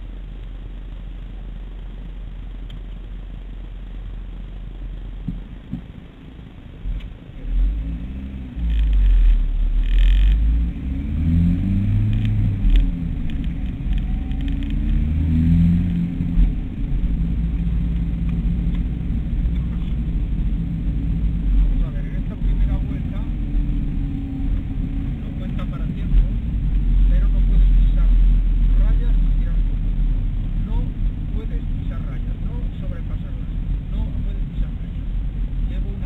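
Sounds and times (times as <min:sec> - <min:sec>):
car engine accelerating: 0:06.7 - 0:36.0.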